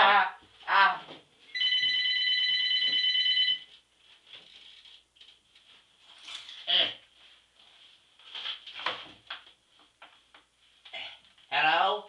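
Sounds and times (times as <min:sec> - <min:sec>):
telephone ringing: 0:01.5 - 0:03.7.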